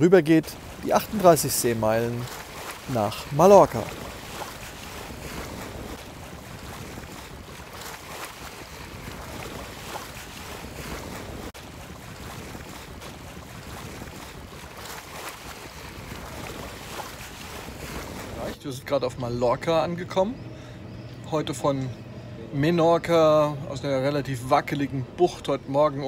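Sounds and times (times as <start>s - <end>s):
water washing past hull: 0.0s - 19.8s
wind rushing on microphone: 3.7s - 18.5s.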